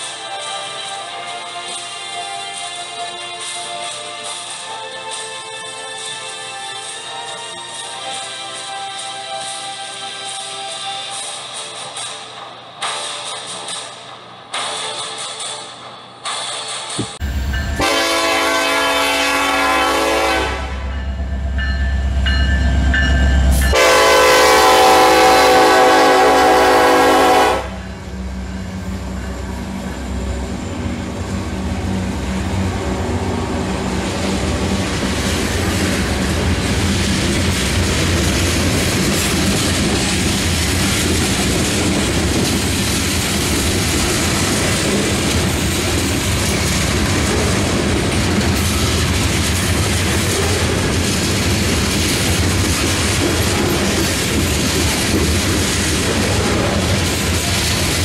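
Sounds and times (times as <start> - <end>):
train wheels on rails: 0.0 - 58.0
deep locomotive rumble: 17.1 - 58.0
locomotive horn blasts: 17.8 - 21.1, 23.6 - 28.0.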